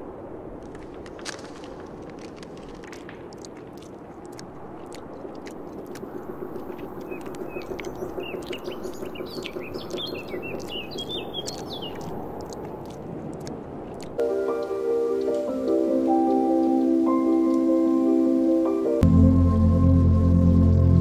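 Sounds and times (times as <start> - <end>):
faint clicks: 0.6 - 15.5
small birds chirping: 1.6 - 19.0
background hiss: 13.6 - 21.0.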